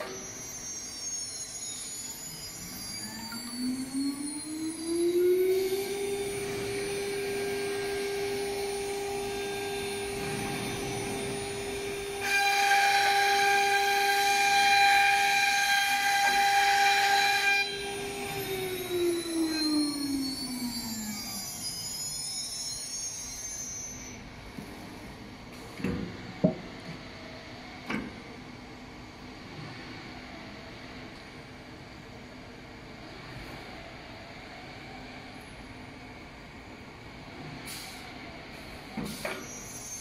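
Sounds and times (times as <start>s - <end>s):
router spindle whine: 0.0s - 24.4s.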